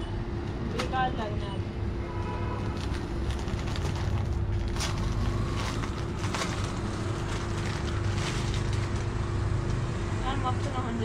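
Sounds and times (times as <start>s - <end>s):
steady low hum: 0.0s - 11.0s
plastic packaging crinkling: 2.6s - 9.4s.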